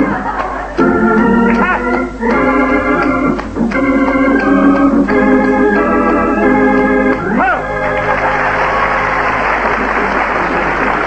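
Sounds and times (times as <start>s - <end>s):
organ playing sustained chords: 0.0s - 11.0s
tap shoes clicking on stage: 1.4s - 7.3s.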